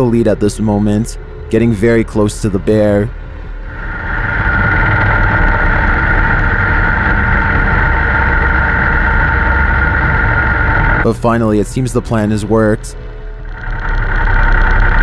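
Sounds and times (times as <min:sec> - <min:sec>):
snowmobile engine running: 0:03.7 - 0:15.0.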